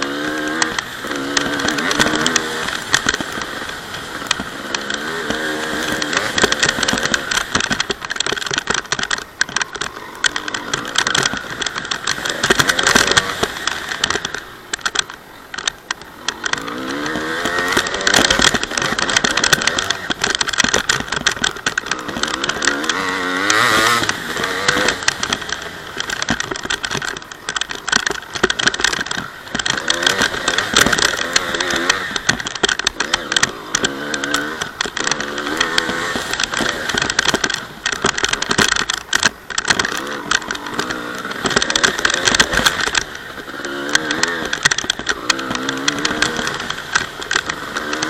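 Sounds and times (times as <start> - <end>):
dirt bike engine revving: 0.0 - 48.0
rattling and clatter: 0.0 - 48.0.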